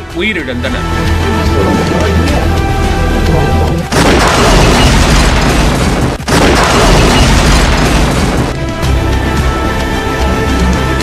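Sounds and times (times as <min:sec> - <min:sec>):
explosion blast: 0:03.9 - 0:08.6.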